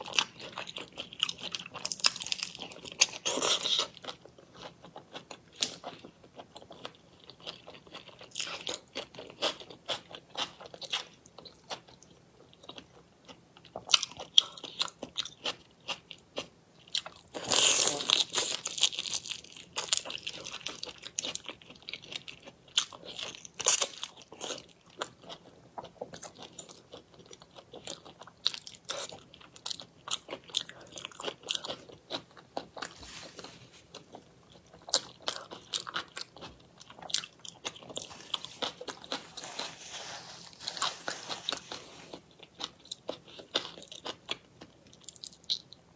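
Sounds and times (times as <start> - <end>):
crunching and chewing shrimp: 0.0 - 45.9.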